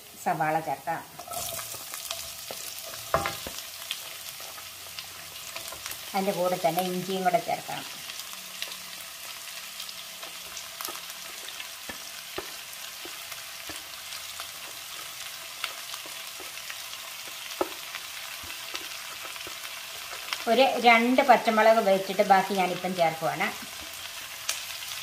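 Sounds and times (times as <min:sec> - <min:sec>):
onions sizzling in a pan: 0:00.0 - 0:25.0.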